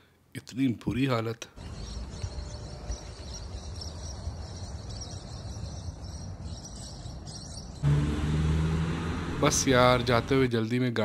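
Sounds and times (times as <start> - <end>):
loud steady low hum: 7.8 - 10.5.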